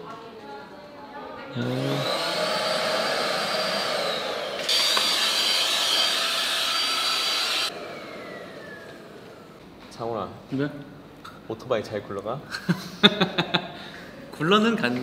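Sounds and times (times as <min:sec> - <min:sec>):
vacuum cleaner motor whine: 0:01.5 - 0:09.8.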